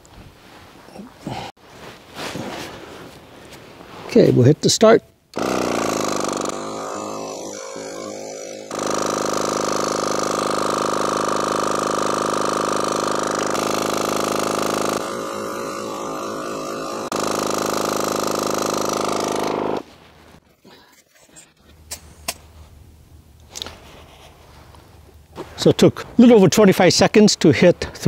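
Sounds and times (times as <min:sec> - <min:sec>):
tire inflator compressor running: 0:05.4 - 0:19.9.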